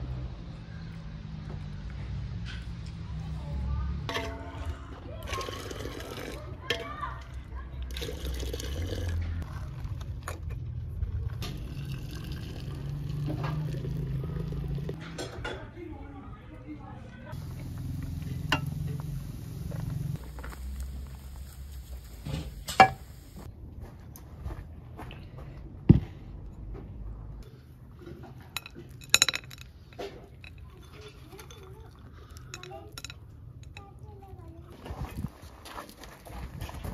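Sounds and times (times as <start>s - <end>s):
tea pouring: 5.3s - 6.4s, 7.9s - 9.2s, 11.4s - 15.0s
light metal clinks: 28.6s - 33.9s.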